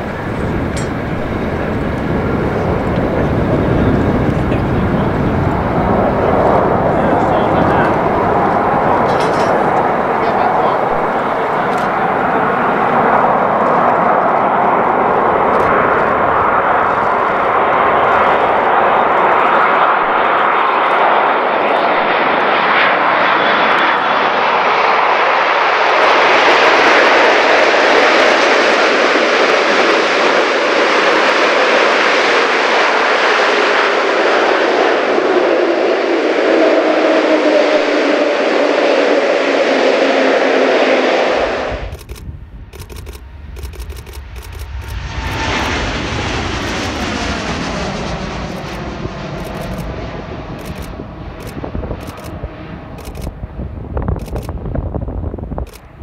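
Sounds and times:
jet engines running loud: 0:00.0 - 0:56.0
engine whine falling in pitch: 0:35.1 - 0:55.6.

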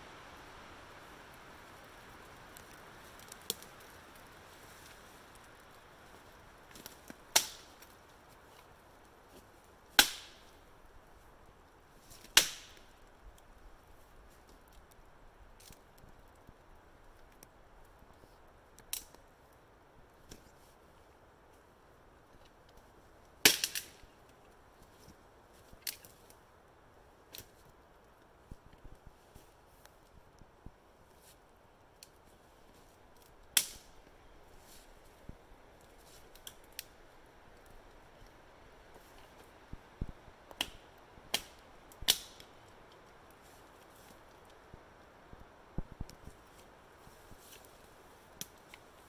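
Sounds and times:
dry wood cracking: 0:01.2 - 0:19.3, 0:22.2 - 0:26.4, 0:31.2 - 0:35.2, 0:35.8 - 0:44.7, 0:45.4 - 0:49.0.

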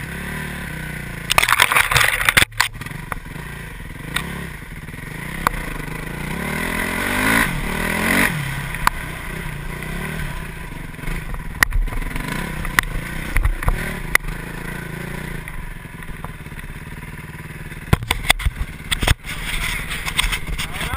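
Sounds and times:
dirt bike engine revving: 0:00.0 - 0:20.9.

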